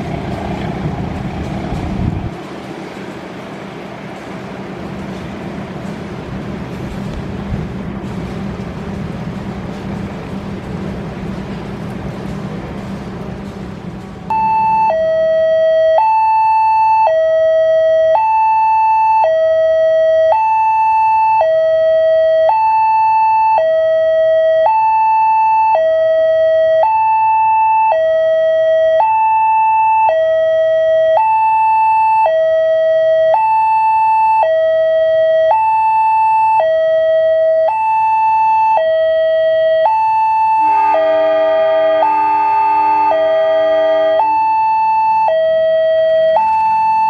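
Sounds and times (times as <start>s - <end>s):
two-tone level-crossing alarm: 14.3s - 47.0s.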